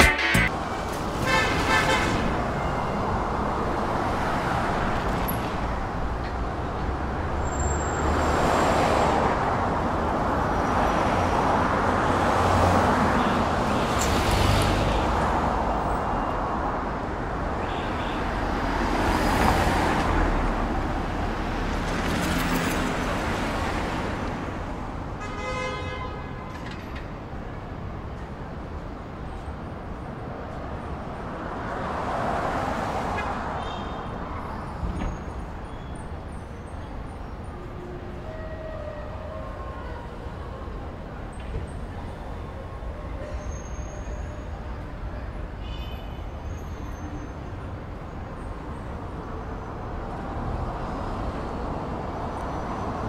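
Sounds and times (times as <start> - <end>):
car horn toot: 0.0 - 0.5, 1.2 - 2.2
cars passing: 0.0 - 17.6, 29.7 - 36.2.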